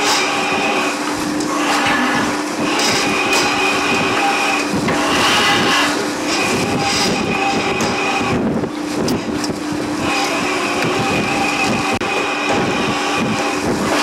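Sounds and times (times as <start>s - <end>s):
machinery whining: 0.0s - 14.0s.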